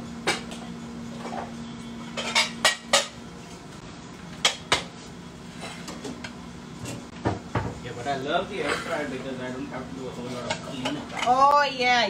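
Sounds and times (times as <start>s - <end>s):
dishes clinking and clattering: 2.1s - 3.2s, 10.2s - 11.4s.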